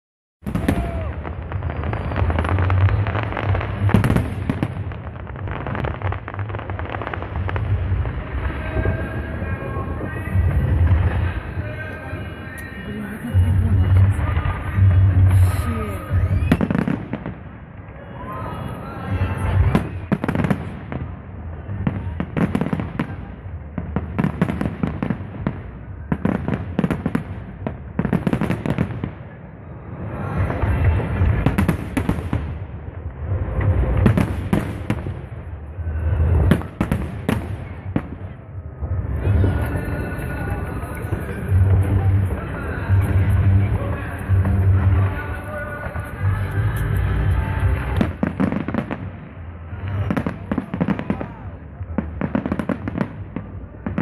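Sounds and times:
fireworks crackling: 0.4 - 54.0
low rumble: 13.1 - 16.6.

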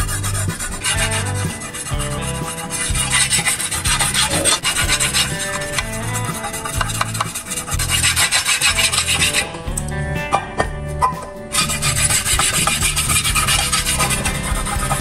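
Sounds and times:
metal bar scraping cleaver blade: 0.6 - 9.4.

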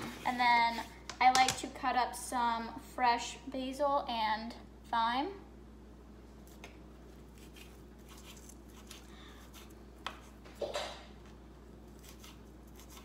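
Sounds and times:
knife cutting herbs on board: 7.4 - 10.4, 11.9 - 13.0.

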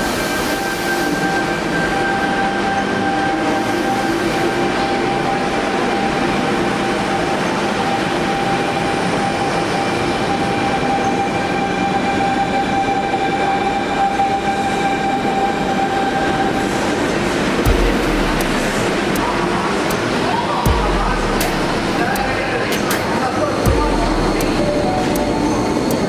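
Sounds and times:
train rumble and rail noise: 0.0 - 26.0
steady whine: 16.0 - 26.0.

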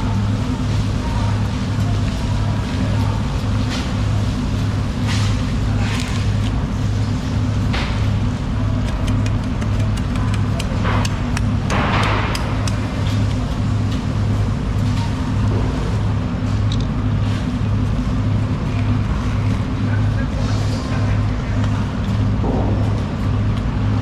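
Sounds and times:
motor throbbing steadily: 0.0 - 24.0
scattered clicks: 8.8 - 13.6.

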